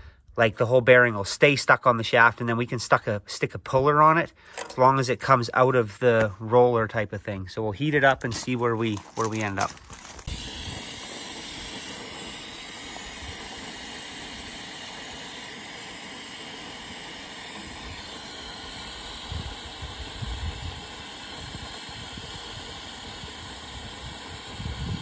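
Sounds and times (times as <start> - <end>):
cutting torch flame hissing: 8.5 - 25.0.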